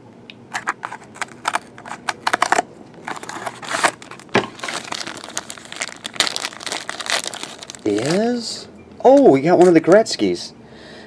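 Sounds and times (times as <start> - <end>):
card pack snap: 0.5 - 8.2
plastic and card crinkling: 0.5 - 8.4.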